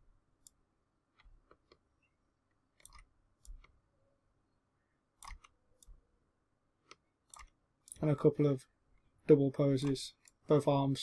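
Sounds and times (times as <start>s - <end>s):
faint computer mouse clicks: 5.2s - 6.0s.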